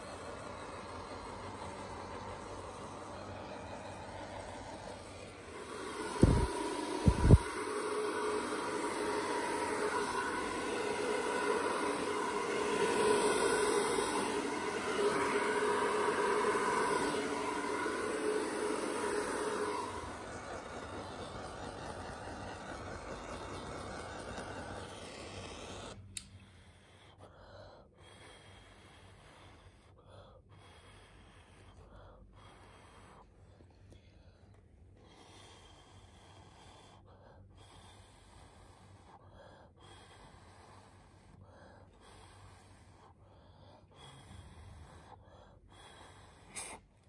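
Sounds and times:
gas torch hissing: 0:00.0 - 0:26.6.

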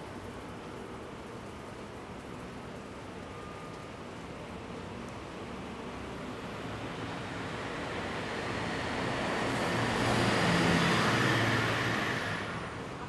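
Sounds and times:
vehicle driving past: 0:07.2 - 0:13.0.

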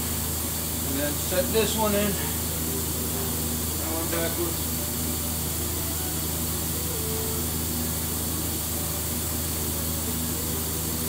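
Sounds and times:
milling machine humming: 0:00.0 - 0:11.0.

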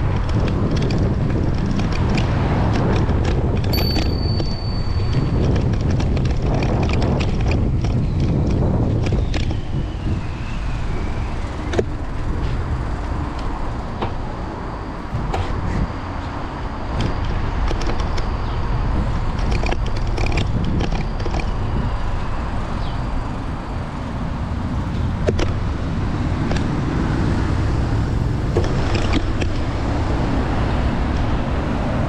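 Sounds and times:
scattered clicks: 0:00.0 - 0:09.6, 0:16.9 - 0:18.4, 0:19.2 - 0:21.6
road traffic rumble: 0:00.0 - 0:32.0
wind on microphone: 0:00.0 - 0:32.0
brief high steady tone: 0:03.7 - 0:05.2.

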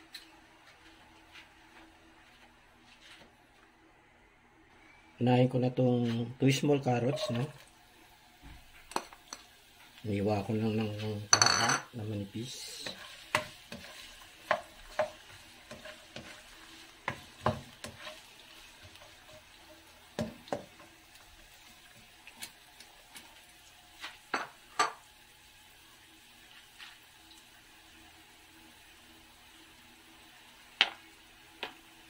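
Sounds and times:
carrots sizzling in oil: 0:06.9 - 0:32.0
spatula scraping a pan: 0:07.0 - 0:07.5, 0:12.5 - 0:20.0.

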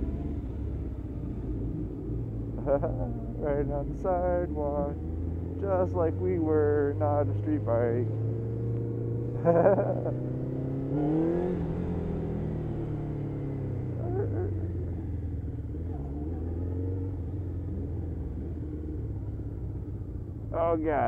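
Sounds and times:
motorcycle engine running: 0:00.0 - 0:21.0.

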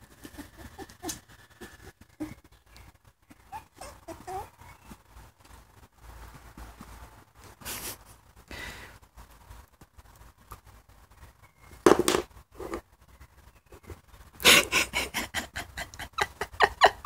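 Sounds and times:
dogs sniffing and breathing: 0:00.0 - 0:09.6.

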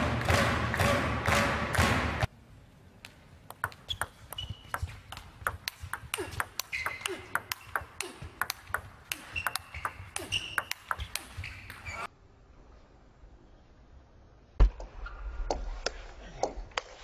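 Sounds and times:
table tennis ball hits: 0:03.5 - 0:11.9.

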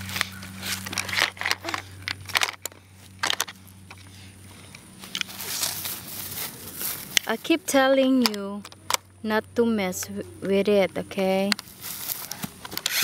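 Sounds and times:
plastic toy being handled: 0:00.7 - 0:03.6.

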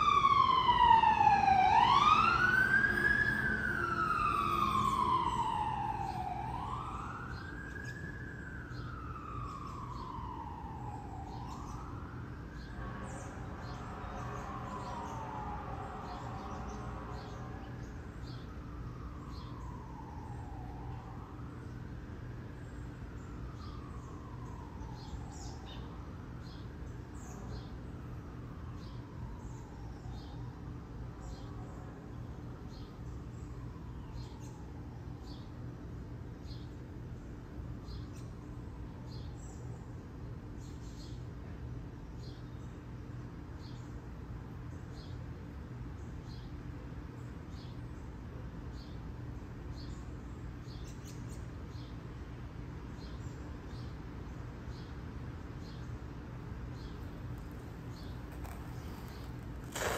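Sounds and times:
siren wailing: 0:00.0 - 0:21.5, 0:23.1 - 0:26.0, 0:57.2 - 0:59.9.

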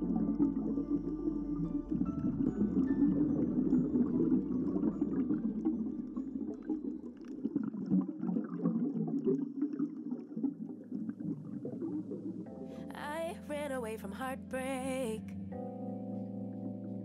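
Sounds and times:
underwater bubbles gurgling: 0:00.0 - 0:12.7.

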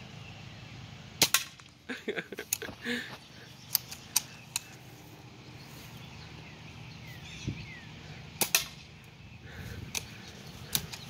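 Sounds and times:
bb gun firing crack: 0:01.2 - 0:01.8, 0:08.4 - 0:08.8.

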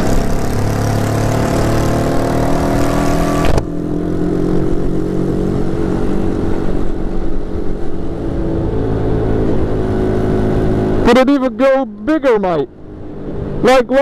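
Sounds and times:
moped engine running: 0:00.0 - 0:05.9.

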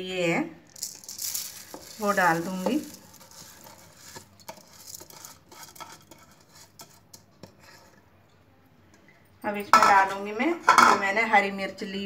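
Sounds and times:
wet rice grains dropping: 0:00.7 - 0:05.4.

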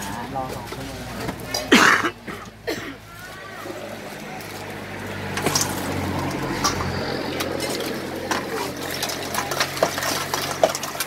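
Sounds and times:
wet mixing of food: 0:00.0 - 0:11.0
ladle clinking and scraping bowl: 0:03.7 - 0:11.0.

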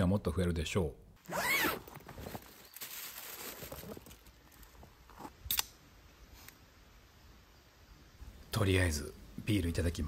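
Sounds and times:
cooler bag unzipping: 0:01.2 - 0:02.5.

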